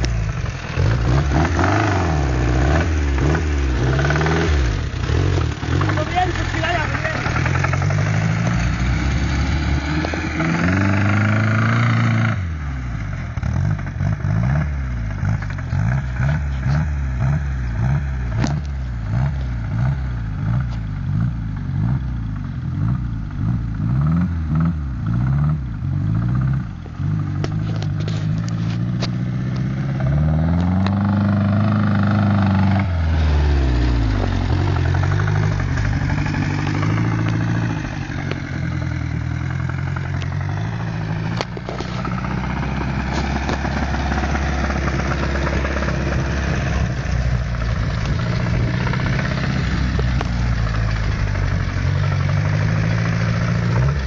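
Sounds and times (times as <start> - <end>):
buggy engine revving: 0.0 - 54.0.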